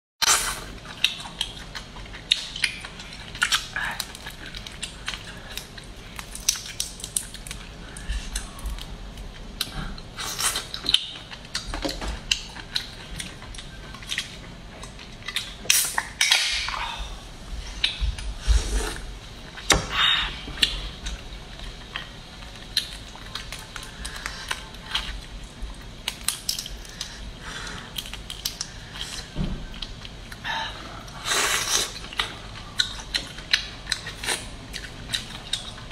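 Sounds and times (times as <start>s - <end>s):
sucking and chewing: 0.2s - 16.9s, 20.6s - 35.9s
crayfish shells cracking: 26.0s - 27.2s.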